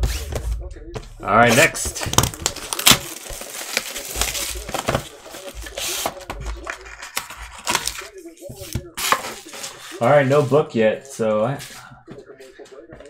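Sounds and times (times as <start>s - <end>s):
plastic shrink-wrap crinkling: 1.5s - 8.2s.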